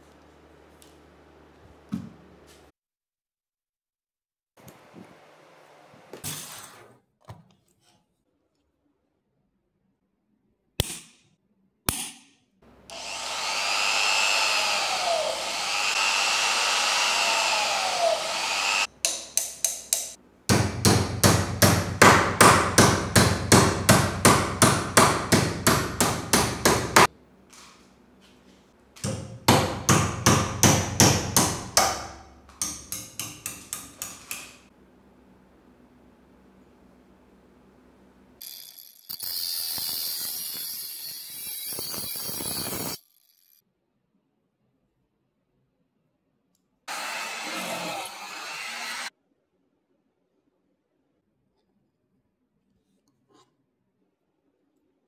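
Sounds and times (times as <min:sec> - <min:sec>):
power drill running: 0:12.9 - 0:18.9, 0:46.9 - 0:49.1.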